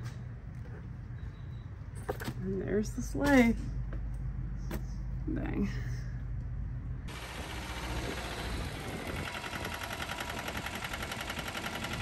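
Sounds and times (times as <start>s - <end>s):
tractor engine running: 7.1s - 12.0s.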